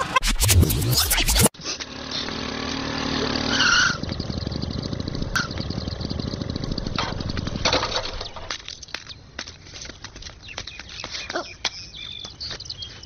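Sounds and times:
motorcycle engine idling: 0:01.8 - 0:08.6.

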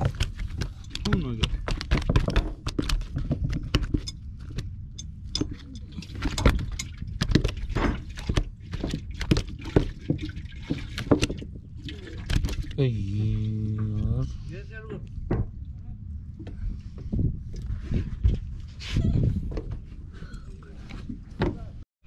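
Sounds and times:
fish flopping on wooden deck: 0:00.0 - 0:04.1, 0:06.0 - 0:12.8
low rumble: 0:11.5 - 0:21.8.

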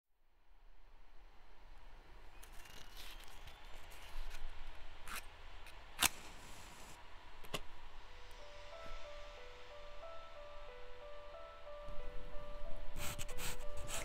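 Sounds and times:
small objects clicking and scraping: 0:02.4 - 0:04.4
simple single-note melody: 0:08.1 - 0:14.0.

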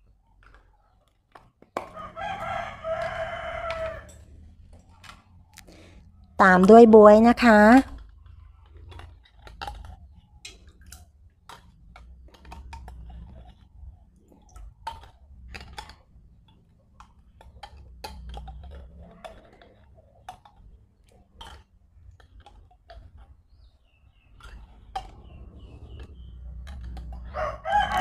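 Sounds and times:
low steady rumble: 0:24.5 - 0:28.0.

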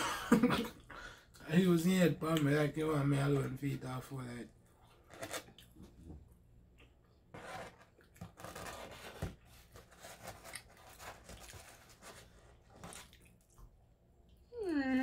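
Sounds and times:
paper rustling: 0:07.4 - 0:13.1
chewing crisp crust: 0:10.3 - 0:13.7.

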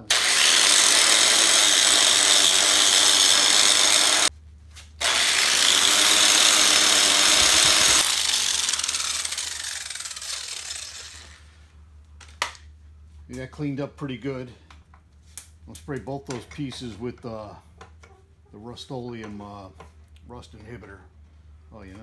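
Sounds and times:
angle grinder with wire wheel: 0:00.0 - 0:04.3, 0:05.0 - 0:11.6.

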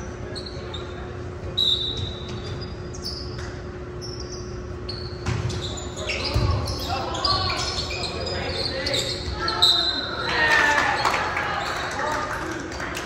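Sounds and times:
sneakers squeaking on gym floor: 0:00.1 - 0:10.3.

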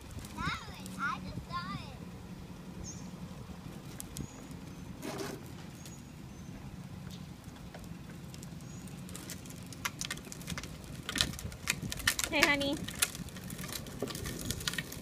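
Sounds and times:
plastic wheels rumbling on concrete: 0:00.0 - 0:02.0, 0:03.2 - 0:15.0
short scrape: 0:05.0 - 0:05.5.

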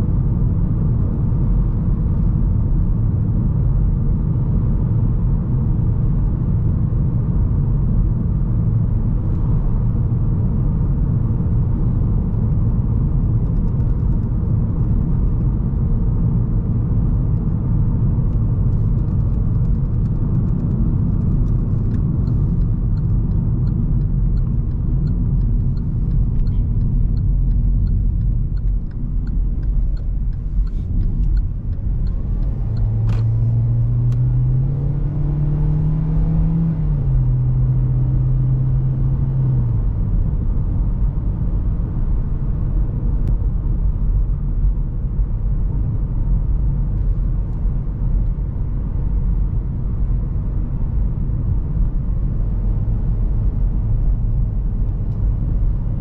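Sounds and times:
road noise rumble: 0:00.0 - 0:56.0
turn signal ticking: 0:18.3 - 0:35.6.

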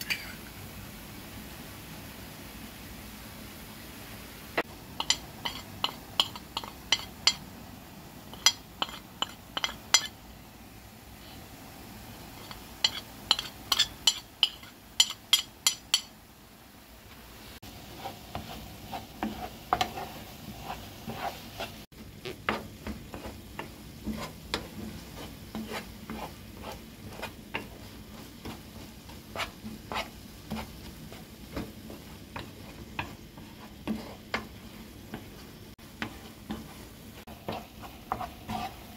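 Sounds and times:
wooden spoon scraping a pan: 0:04.6 - 0:07.4, 0:08.3 - 0:10.2, 0:12.3 - 0:16.1, 0:17.6 - 0:38.9.

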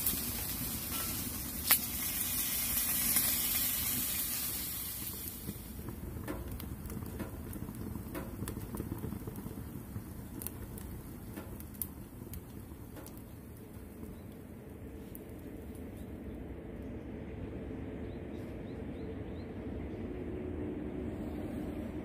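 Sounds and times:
meat sizzling on griddle: 0:00.0 - 0:11.2
pops and crackles: 0:00.0 - 0:16.1.

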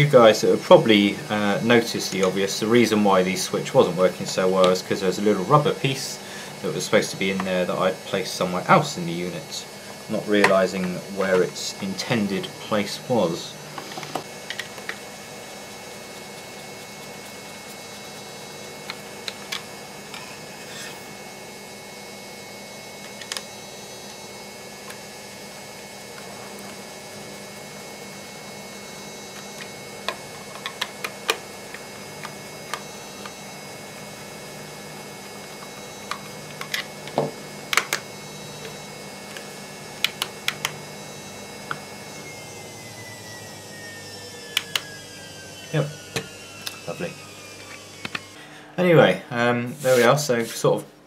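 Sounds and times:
torch switch clicks: 0:38.6 - 0:40.8, 0:44.5 - 0:44.9.

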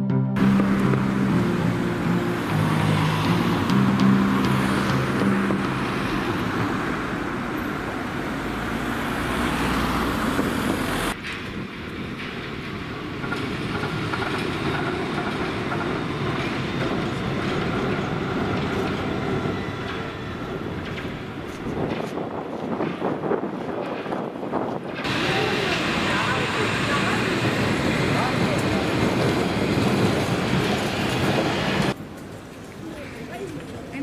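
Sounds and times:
intro music: 0:00.0 - 0:07.0
passing street traffic: 0:00.4 - 0:34.0
quiet street ambience: 0:00.4 - 0:34.0.

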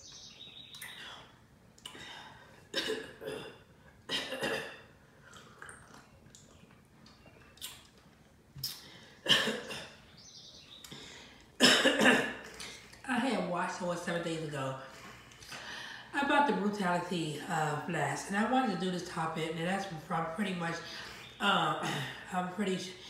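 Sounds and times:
person gulping a drink: 0:04.4 - 0:09.9.

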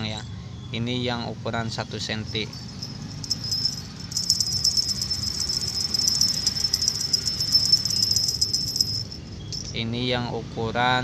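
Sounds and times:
small bells jingling: 0:02.0 - 0:10.2.

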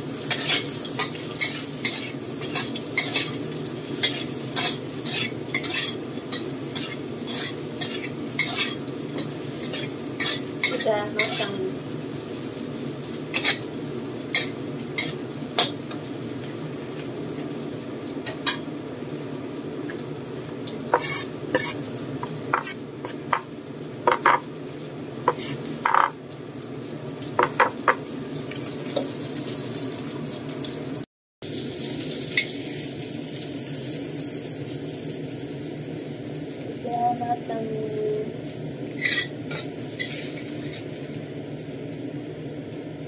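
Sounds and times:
frying sizzle: 0:00.0 - 0:43.0
metal spatula scraping wok: 0:00.2 - 0:03.4, 0:04.0 - 0:11.6, 0:13.3 - 0:13.7, 0:21.0 - 0:21.8, 0:38.9 - 0:40.9.

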